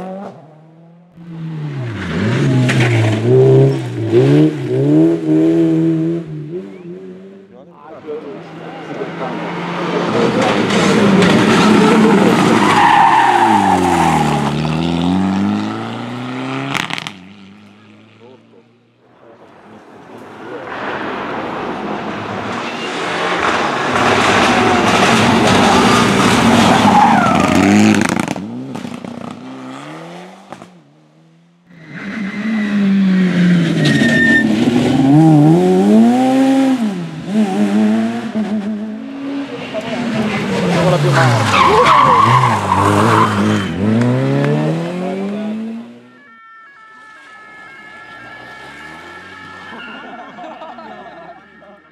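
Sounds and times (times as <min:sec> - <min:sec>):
rally car engine revving: 0:00.0 - 0:46.2, 0:48.1 - 0:51.0
tyres squealing: 0:40.4 - 0:43.9.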